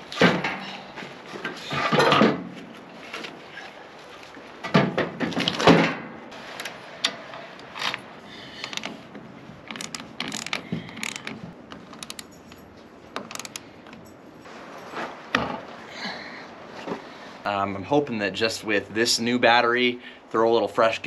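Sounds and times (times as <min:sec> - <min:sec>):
ratchet wrench clicking: 0:09.7 - 0:11.4, 0:12.0 - 0:12.4, 0:13.2 - 0:13.6.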